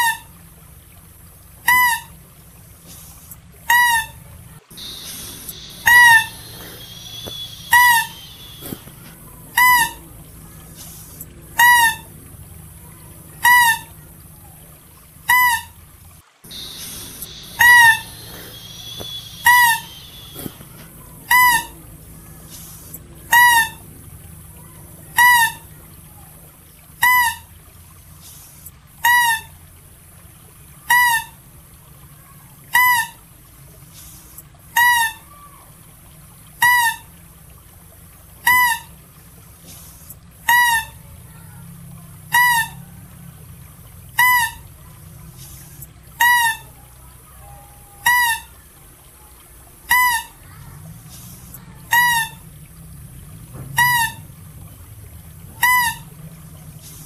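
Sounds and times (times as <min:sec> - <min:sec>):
mouse deer high cry: 0:03.7 - 0:12.2, 0:12.8 - 0:14.7, 0:16.5 - 0:23.8.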